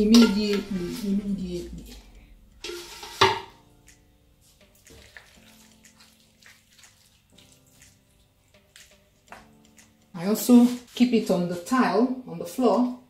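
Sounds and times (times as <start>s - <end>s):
metal pot clanking: 0.0s - 1.1s, 2.6s - 3.6s
faint music: 0.0s - 13.0s
spoon scraping pot: 2.6s - 3.5s.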